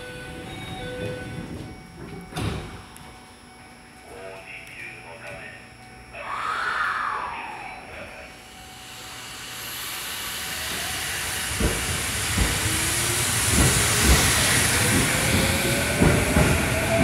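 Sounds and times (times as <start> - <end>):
train hiss: 8.2 - 17.0
train wheels thumping over rail joints: 10.7 - 17.0.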